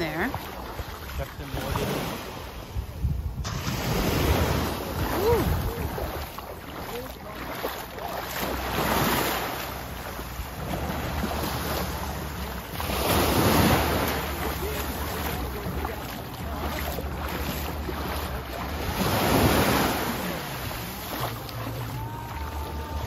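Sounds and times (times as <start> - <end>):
wind buffeting microphone: 0.0 - 6.8
small waves breaking on sand: 0.0 - 23.0.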